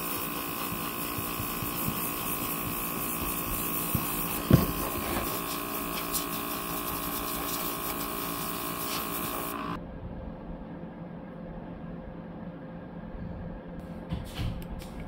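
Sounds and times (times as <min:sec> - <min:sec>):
airbrush hissing: 0:00.0 - 0:09.8
electric compressor hum: 0:00.0 - 0:15.0.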